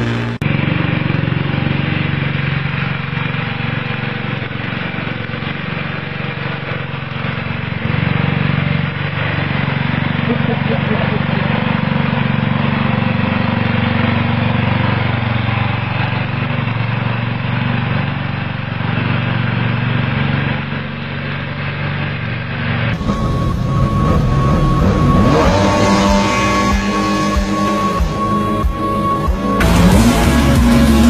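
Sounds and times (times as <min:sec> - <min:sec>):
lawn tractor engine running: 0:00.0 - 0:31.0
music: 0:23.0 - 0:31.0.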